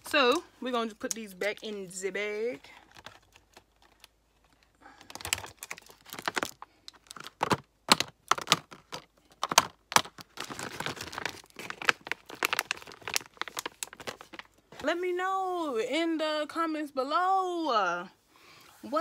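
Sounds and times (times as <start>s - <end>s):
plastic pouch crinkling: 1.1s - 14.7s
lipstick tubes clicking and rattling: 5.2s - 10.6s.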